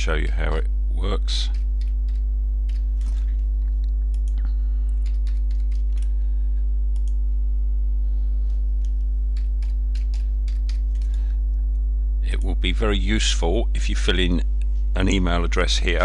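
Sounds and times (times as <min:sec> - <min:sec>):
low electrical hum: 0:00.0 - 0:16.0
computer keyboard typing: 0:01.4 - 0:03.4, 0:04.2 - 0:06.1, 0:08.8 - 0:11.2.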